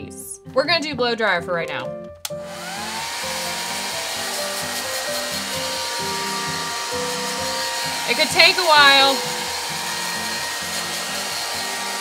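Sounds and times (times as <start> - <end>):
hair dryer switch click: 2.2 - 2.9
hair dryer motor whine: 2.2 - 12.0.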